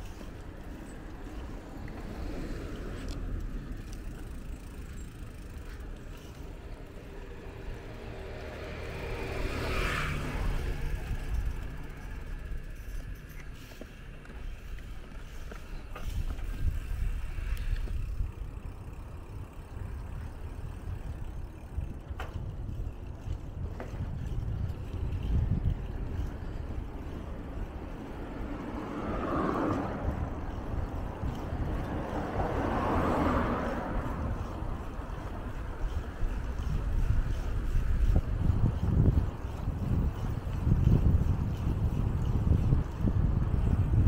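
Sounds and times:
car passing close: 0.0s - 13.8s, 27.7s - 38.2s
wind rumbling on microphone: 0.0s - 44.0s.

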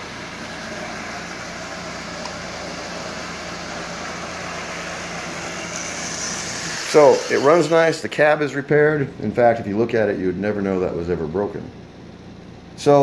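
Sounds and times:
toy train motor whirring on rails: 1.2s - 8.0s.

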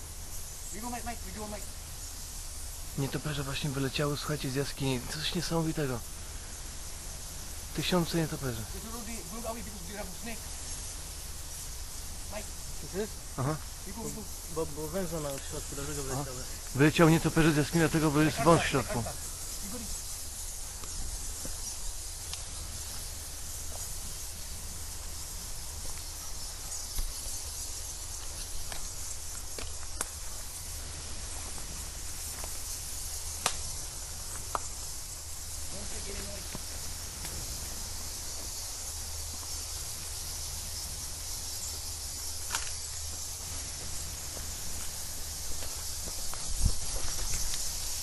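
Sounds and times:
insects hissing: 0.0s - 48.0s
wind rumble on microphone: 46.1s - 48.0s.

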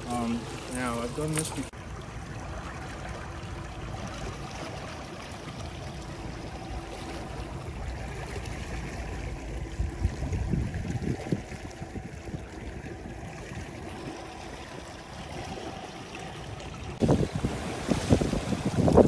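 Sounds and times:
low motor hum: 0.0s - 19.0s
water washing along hull: 0.0s - 19.0s.

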